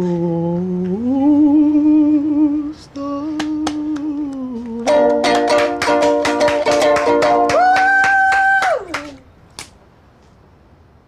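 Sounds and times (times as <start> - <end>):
person singing: 0.0 - 9.2
strummed ukulele: 4.8 - 8.0.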